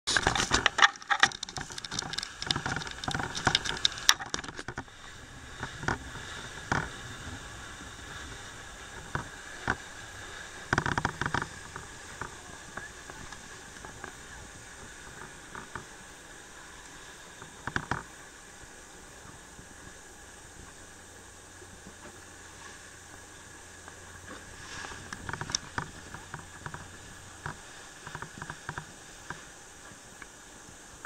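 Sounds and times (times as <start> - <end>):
boat engine and water rushing: 0.0 - 31.0
cracks and knocks: 0.1 - 4.9, 6.7 - 7.0, 10.7 - 14.2, 17.6 - 18.1, 24.9 - 29.4.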